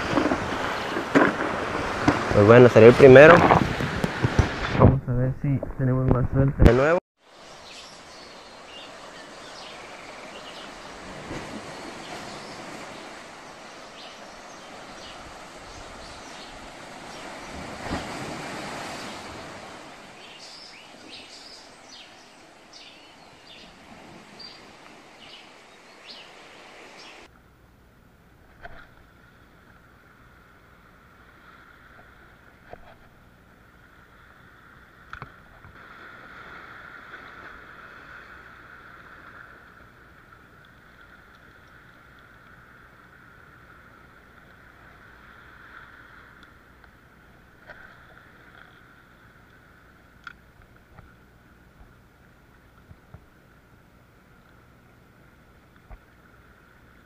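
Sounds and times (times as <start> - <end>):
sea waves: 0.0 - 57.0
wind: 0.0 - 57.0
faint steady hum: 27.2 - 57.0.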